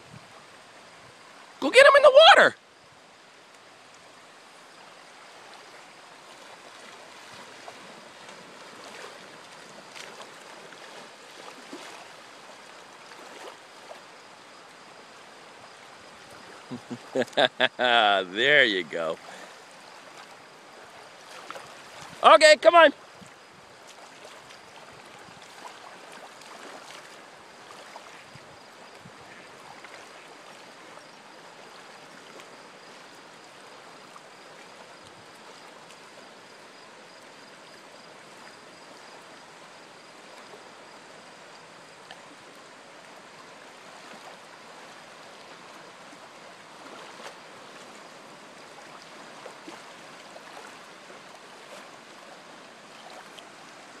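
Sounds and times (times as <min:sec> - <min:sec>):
water rushing on shoreline: 0:00.0 - 0:54.0
faint ticks: 0:03.5 - 0:04.1.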